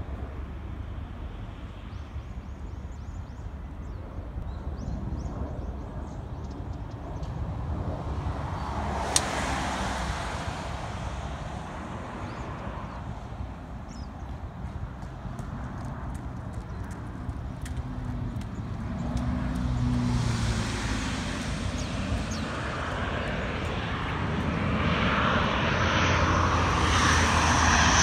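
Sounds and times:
distant jet aircraft rumble: 0.0 - 28.0
birds chirping: 1.4 - 7.4, 11.7 - 26.2
road vehicle passing: 7.2 - 28.0
sharp click: 9.1 - 9.3.

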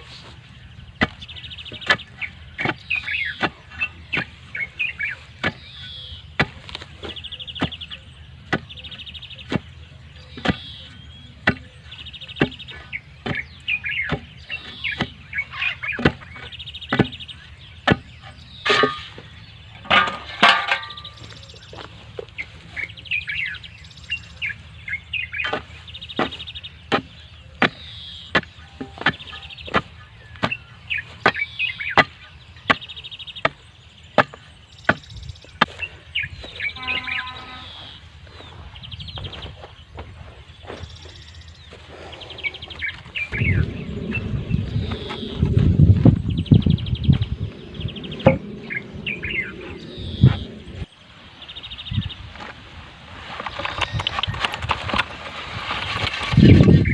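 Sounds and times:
birds chirping: 0.0 - 56.9
clatter of stones: 18.6 - 21.9, 53.2 - 56.9.

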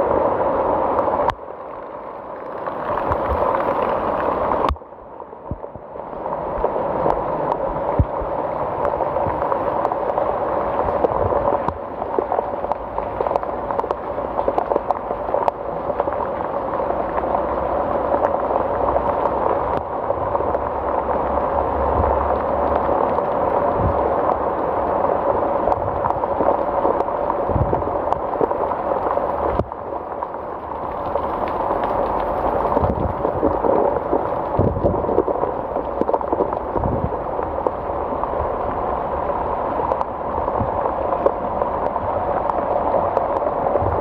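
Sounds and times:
heavy rain falling: 0.0 - 44.0.

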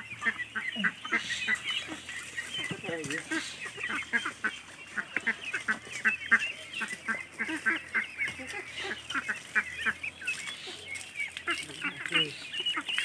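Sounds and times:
ducklings peeping: 0.0 - 13.0
ducks calling: 0.0 - 13.0.

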